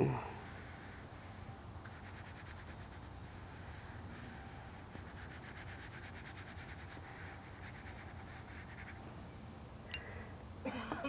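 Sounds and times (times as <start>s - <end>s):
brush scrubbing paper: 1.9s - 9.0s.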